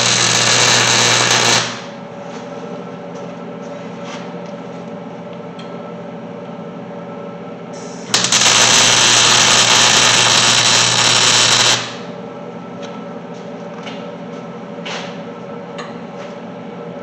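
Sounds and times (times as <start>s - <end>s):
welder arc buzzing: 0.0s - 2.0s, 7.8s - 12.1s.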